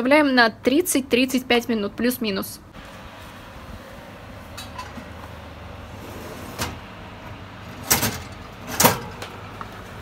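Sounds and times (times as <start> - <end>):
steady low hum: 2.6 - 10.0
oven rack sliding: 4.6 - 10.0
baking dish set on oven rack: 7.7 - 9.4.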